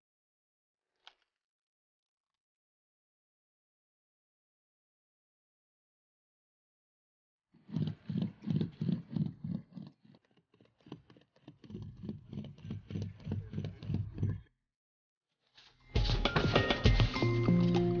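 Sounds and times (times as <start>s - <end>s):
seam roller rubbing on rubber: 7.6s - 14.5s.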